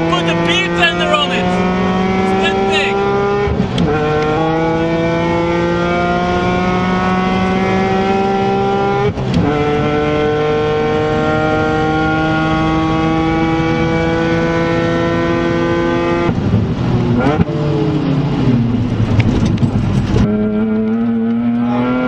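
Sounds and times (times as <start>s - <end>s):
car engine accelerating hard: 0.0s - 22.0s.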